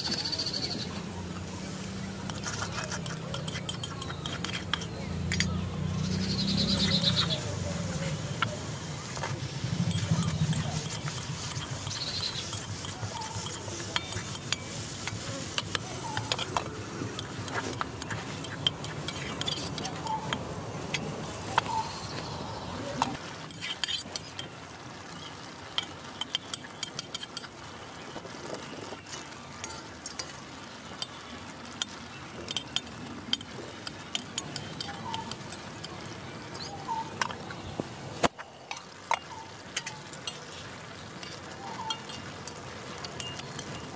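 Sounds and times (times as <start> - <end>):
frying sizzle: 0.0 - 43.9
metal spatula scraping a pan: 1.5 - 5.5, 9.1 - 20.4, 23.4 - 24.5.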